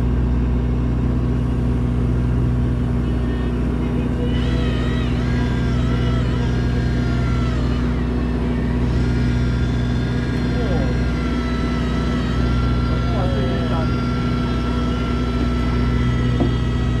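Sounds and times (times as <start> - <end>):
boat motor humming: 0.0 - 17.0
wavering high tone: 3.1 - 17.0.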